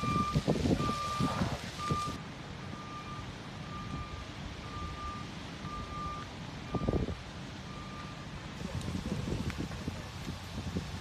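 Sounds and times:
truck reversing alarm beeping: 0.0 - 8.5.

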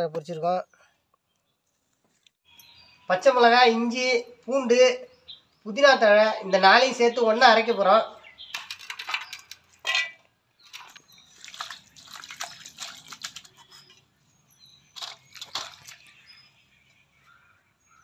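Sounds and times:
ingredients clattering into steel jar: 8.5 - 13.7, 15.0 - 16.1
water splashing and dripping: 8.5 - 14.1, 14.9 - 16.5.

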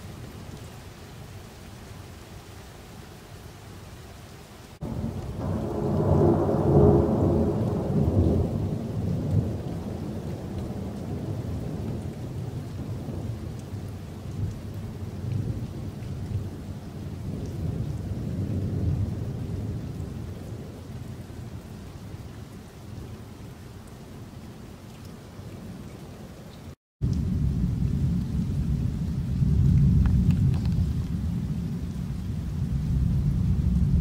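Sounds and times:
rain hissing: 0.0 - 34.0
thunder rumbling: 4.8 - 21.6, 27.0 - 34.0.

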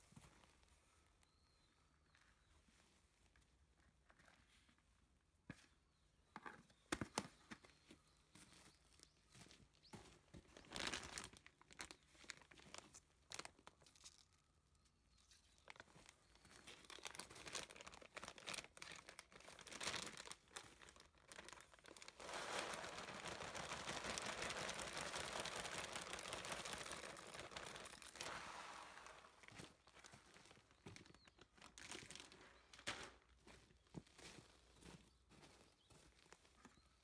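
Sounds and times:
plastic bag crinkling: 10.4 - 14.4, 15.5 - 33.6
soil pouring into plastic bucket: 20.7 - 30.2.

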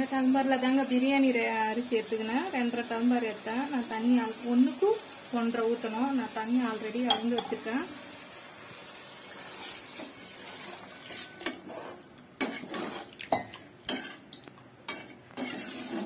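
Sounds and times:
ladle knocking against metal pot: 7.1 - 7.6
water pouring into pot: 7.1 - 11.9
ladle stirring liquid: 9.5 - 16.0.

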